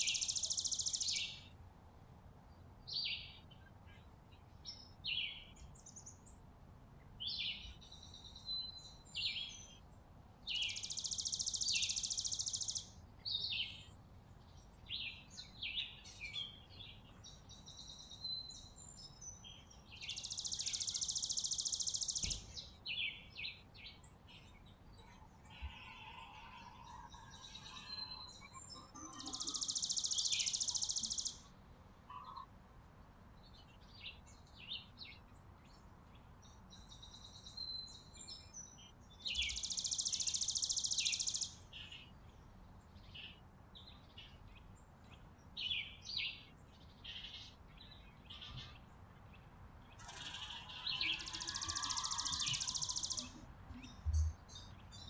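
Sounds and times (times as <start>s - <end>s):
sparrows chirping: 0.0s - 1.6s, 7.2s - 31.5s, 33.4s - 55.0s
sparrows chattering in bursts: 50.0s - 53.4s.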